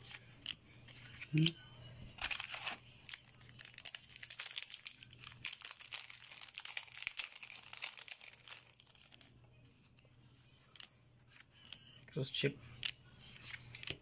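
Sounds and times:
foil wrapper crinkling and tearing: 0:02.2 - 0:09.3.

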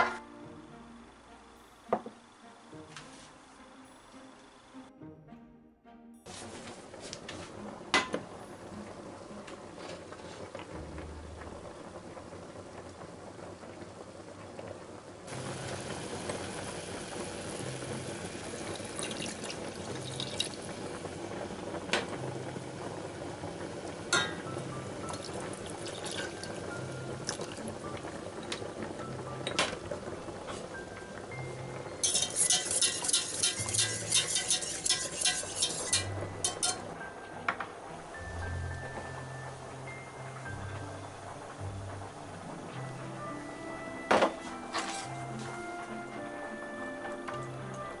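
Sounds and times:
quiet background music: 0:00.0 - 0:48.0
liquid pouring into saucepan: 0:17.1 - 0:21.9, 0:24.0 - 0:28.6, 0:32.0 - 0:36.8.

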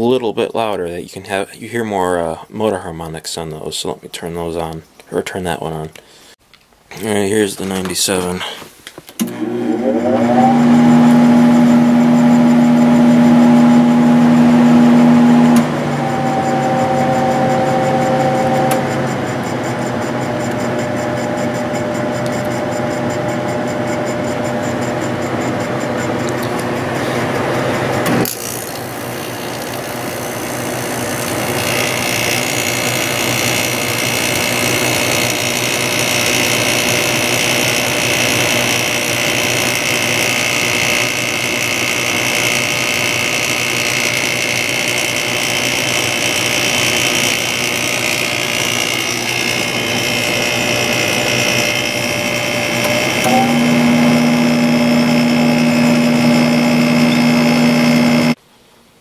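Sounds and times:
air conditioner fan whirring: 0:09.2 - 0:29.5
high whine: 0:09.4 - 0:58.4
deep steady hum: 0:10.4 - 0:39.9, 0:44.2 - 0:58.4.

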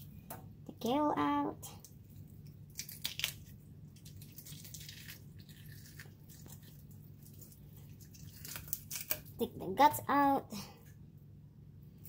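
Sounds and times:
steady low hum: 0:00.0 - 0:12.0
wet squelching and tearing: 0:01.8 - 0:09.4.

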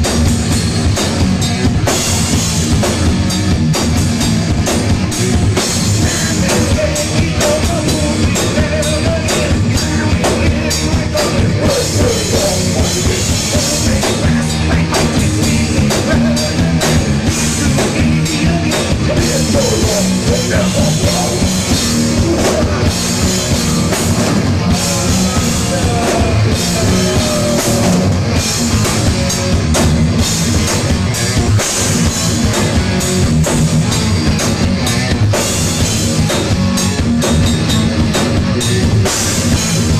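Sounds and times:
heavy metal band playing: 0:00.0 - 0:39.9
pounding drum kit: 0:00.0 - 0:39.9
man singing: 0:06.0 - 0:28.3.

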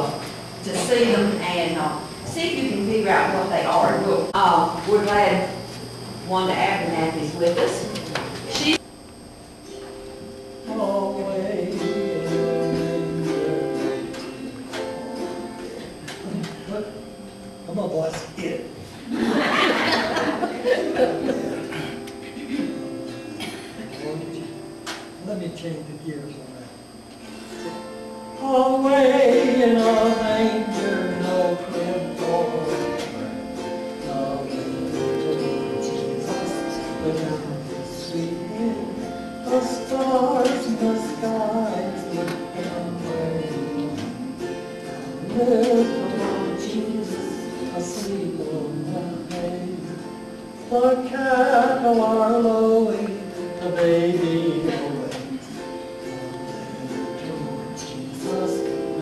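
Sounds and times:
man singing into a microphone: 0:10.7 - 0:14.5, 0:28.4 - 0:33.4, 0:34.0 - 0:44.3, 0:45.0 - 0:50.1, 0:50.7 - 0:55.4, 0:56.1 - 0:59.0.

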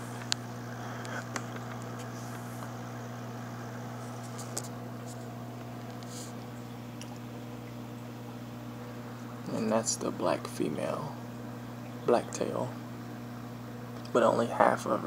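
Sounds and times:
aquarium equipment humming: 0:00.0 - 0:15.0.

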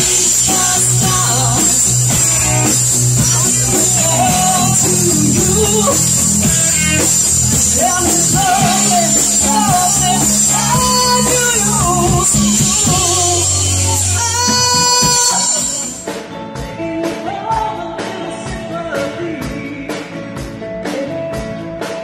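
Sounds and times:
woman singing: 0:00.0 - 0:06.6, 0:07.7 - 0:21.6
low bass notes: 0:00.0 - 0:16.0
drums: 0:00.0 - 0:22.0
electric guitar: 0:00.0 - 0:22.0.

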